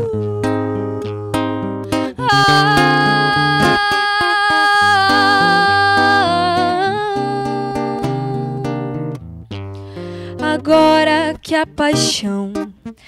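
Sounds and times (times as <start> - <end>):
nylon string guitar: 0.0 - 13.0
woman singing wordless note: 2.1 - 8.6.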